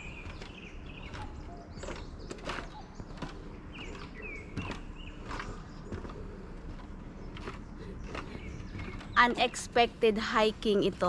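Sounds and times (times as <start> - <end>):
footsteps walking: 0.0 - 9.3
bird chirping: 0.0 - 10.1.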